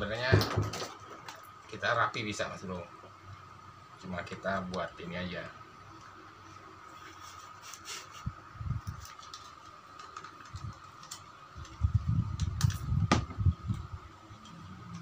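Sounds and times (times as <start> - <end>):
faint high hum: 0.0 - 15.0
packing tape crackling: 8.8 - 12.9.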